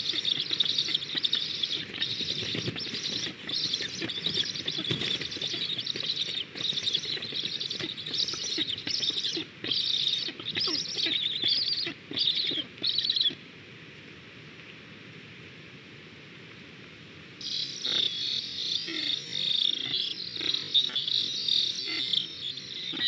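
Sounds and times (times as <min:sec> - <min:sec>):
nestlings begging calls: 0:00.0 - 0:13.4, 0:17.4 - 0:23.0
wing flapping: 0:01.7 - 0:09.2.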